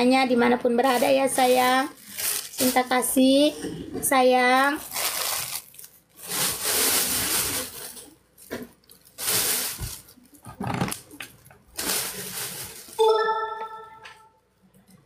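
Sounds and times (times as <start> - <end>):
plastic sheet crinkling: 0.7 - 3.2, 4.5 - 13.0.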